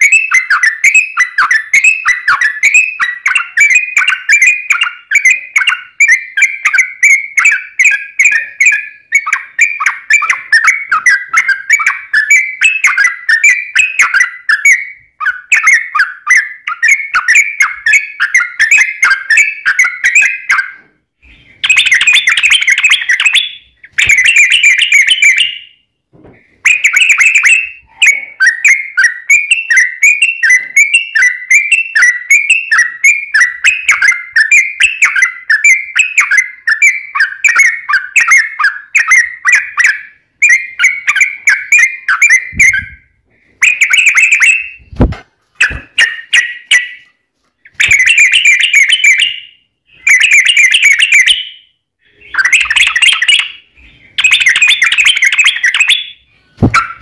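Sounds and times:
bird singing bubbly chattering phrases: 21.5 - 25.7, 52.1 - 57.0.

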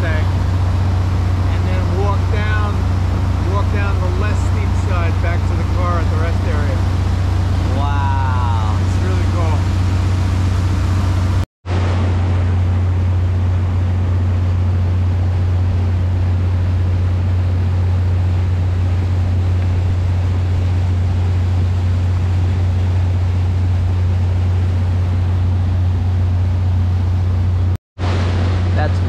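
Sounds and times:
boat engine drone: 0.0 - 29.0
hiss of water and wind: 0.0 - 29.0.

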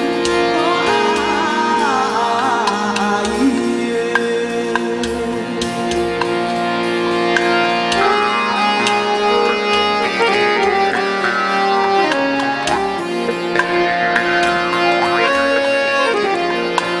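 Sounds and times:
held melodic tones: 0.0 - 17.0
hand drum strikes: 7.4 - 15.6.

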